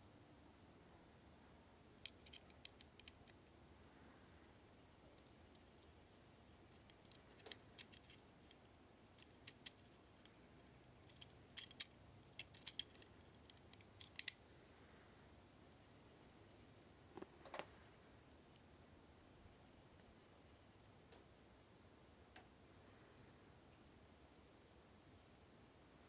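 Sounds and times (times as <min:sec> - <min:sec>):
clicks and taps of small steel parts: 0:02.0 - 0:03.5, 0:06.6 - 0:14.4.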